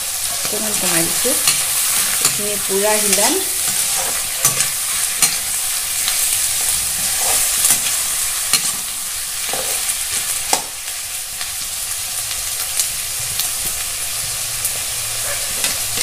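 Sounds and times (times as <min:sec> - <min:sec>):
meat sizzling in a pan: 0:00.0 - 0:16.0
metal spatula scraping a pan: 0:00.2 - 0:09.9, 0:15.1 - 0:16.0.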